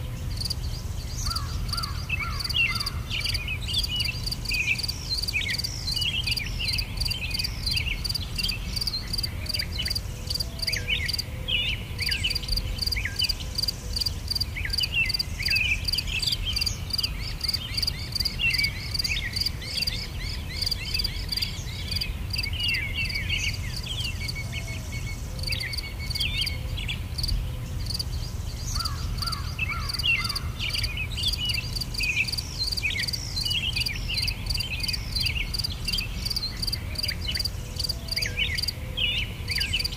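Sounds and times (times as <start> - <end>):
insects chirping: 0.3 - 11.3, 12.0 - 38.8
bird chirps: 0.3 - 39.9.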